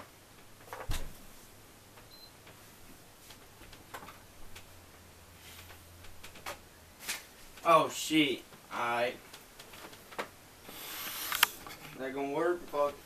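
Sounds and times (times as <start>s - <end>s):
low steady hum: 0.0s - 13.0s
thump: 0.8s - 1.2s.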